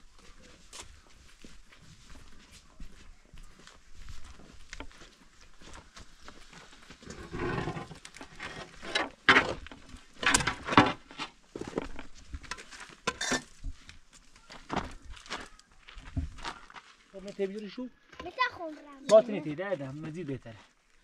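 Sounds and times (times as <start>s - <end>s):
wooden board scraping: 7.0s - 11.9s.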